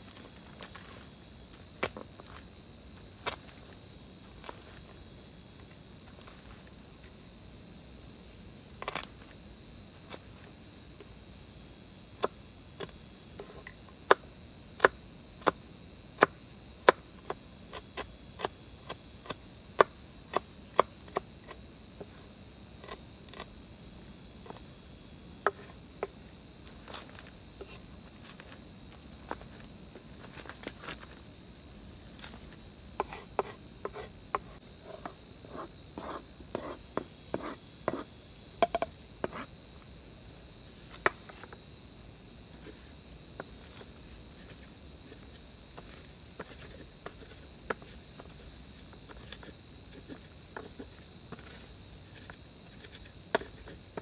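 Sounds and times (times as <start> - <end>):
insects chirring: 0.0 - 54.0
knife chopping on wooden board: 33.0 - 39.5.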